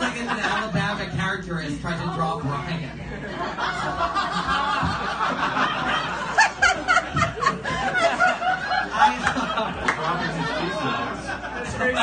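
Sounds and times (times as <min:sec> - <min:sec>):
audience laughing: 0:03.0 - 0:12.0
rapid rhythmic laughs: 0:03.1 - 0:12.0.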